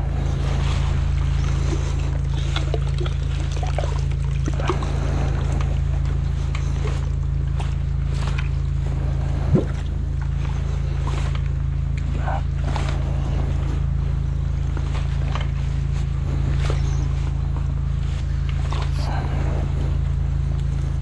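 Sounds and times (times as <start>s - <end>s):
water splashing and trickling: 0.0s - 13.6s
low engine drone: 0.0s - 21.0s.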